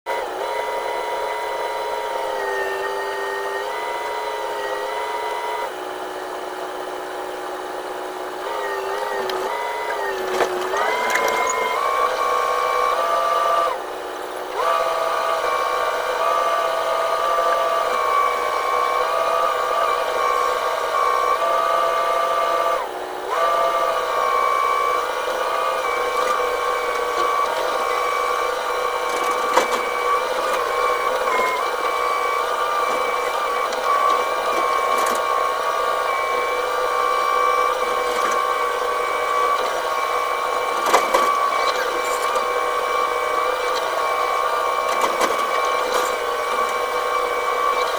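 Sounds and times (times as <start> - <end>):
excavator engine and hydraulics whine: 0.1 - 47.9.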